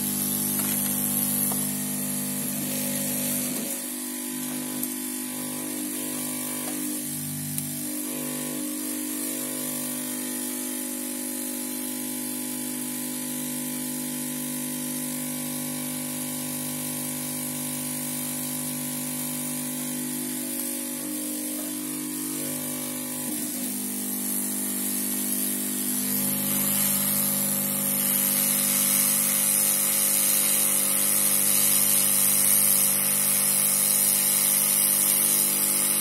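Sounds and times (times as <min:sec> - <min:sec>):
motor hum: 0:00.0 - 0:10.4, 0:20.2 - 0:33.4
hot air blowing hiss: 0:23.2 - 0:36.0.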